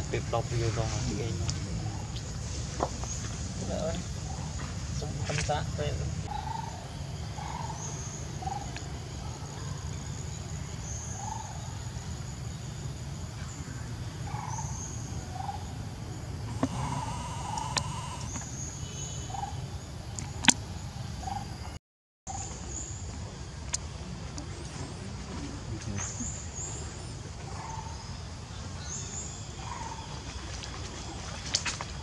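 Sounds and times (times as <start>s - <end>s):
birds calling: 0.0s - 9.8s, 13.4s - 15.8s, 16.4s - 20.6s, 23.7s - 32.0s
steady low hum: 0.0s - 21.7s.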